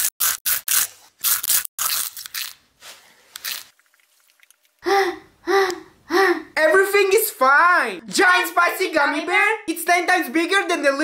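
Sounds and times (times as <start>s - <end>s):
crunchy snack chewing: 0.0s - 2.6s, 3.3s - 4.8s.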